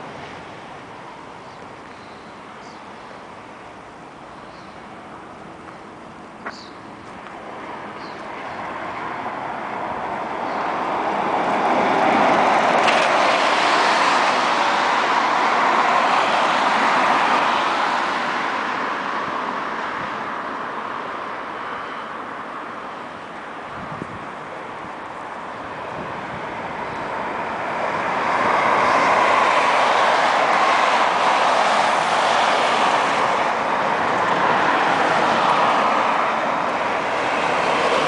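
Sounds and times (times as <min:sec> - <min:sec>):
vehicle passing by: 0:08.4 - 0:20.1.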